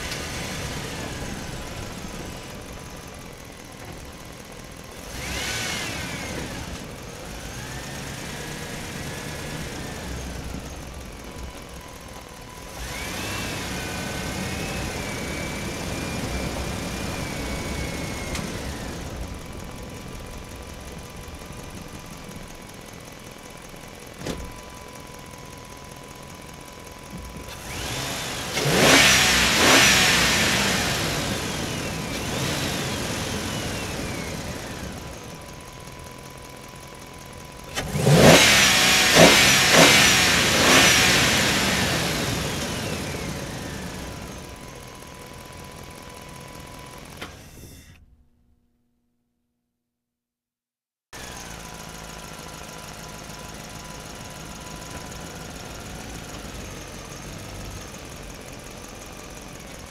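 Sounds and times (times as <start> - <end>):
toy dump truck high whine: 5.1 - 19.4, 27.5 - 36.4, 37.7 - 48.2
toy excavator motors whining: 27.5 - 35.3.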